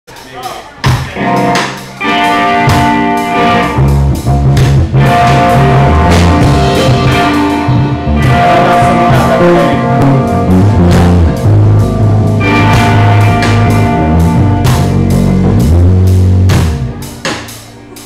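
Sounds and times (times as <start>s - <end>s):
drum kit: 0.1s - 18.0s
bass line: 0.8s - 18.0s
electric guitars sustained notes: 1.2s - 18.0s.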